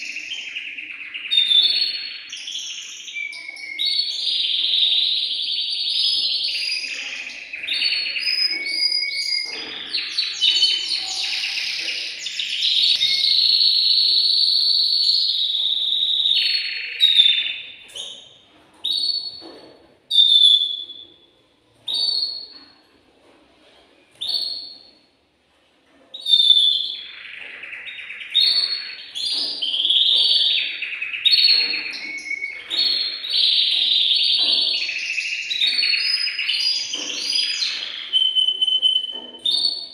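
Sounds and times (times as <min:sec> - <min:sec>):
canary singing: 0:00.0 - 0:22.8, 0:24.1 - 0:25.1, 0:26.1 - 0:39.9.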